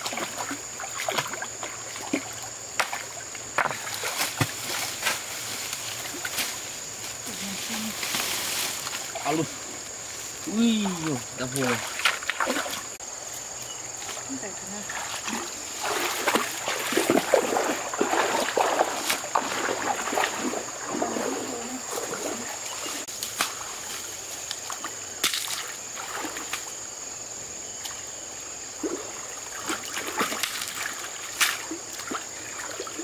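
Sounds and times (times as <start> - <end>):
water splashing as people wade: 0.0 - 13.0, 14.0 - 26.8, 28.8 - 33.0
stream trickling: 0.0 - 26.9, 27.8 - 33.0
gravel and branches moving: 3.4 - 14.2.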